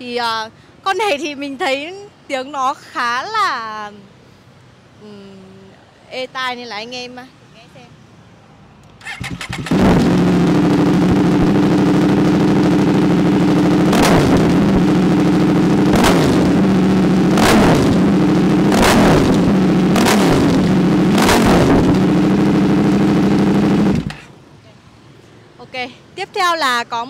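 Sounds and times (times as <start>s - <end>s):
motorcycle engine revving: 9.0s - 24.3s.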